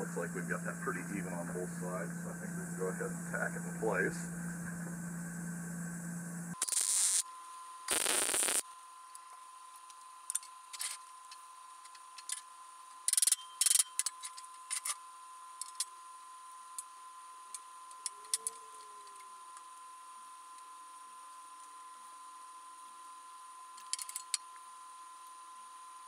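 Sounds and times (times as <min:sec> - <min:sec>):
steady high hum: 0:00.0 - 0:08.9
short bursts of noise: 0:06.5 - 0:07.2, 0:07.9 - 0:08.6.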